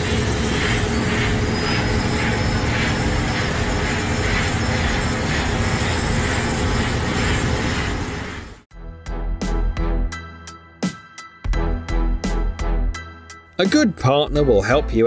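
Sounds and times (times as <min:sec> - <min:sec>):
heavy diesel machinery running: 0:00.0 - 0:08.7.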